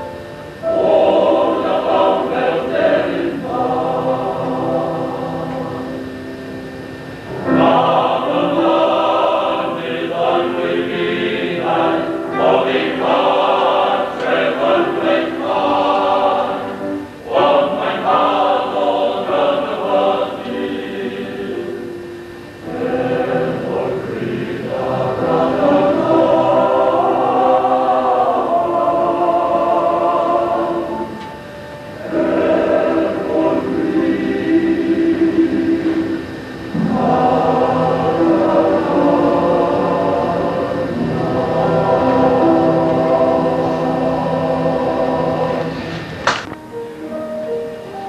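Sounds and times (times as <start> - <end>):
choir singing in harmony: 0.0 - 48.0.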